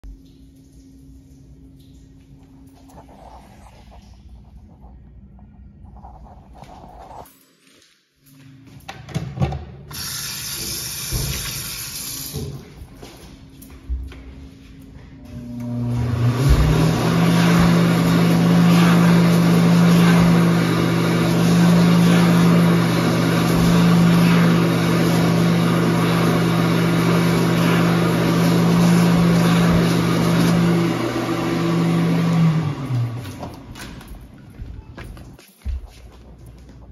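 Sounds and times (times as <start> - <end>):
hand dryer motor and air rush: 9.9 - 12.6, 15.2 - 33.7.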